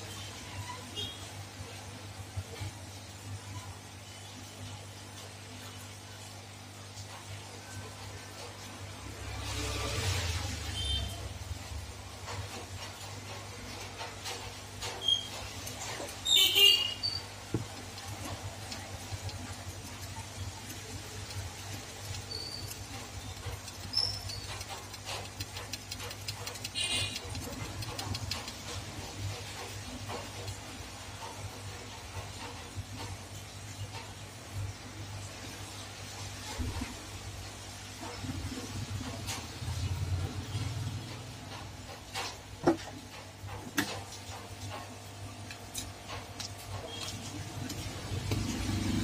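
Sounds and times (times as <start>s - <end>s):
metal tool ticking and scraping: 11.0s - 33.2s, 40.5s - 49.0s
high squeaks: 14.9s - 17.4s, 22.2s - 24.9s.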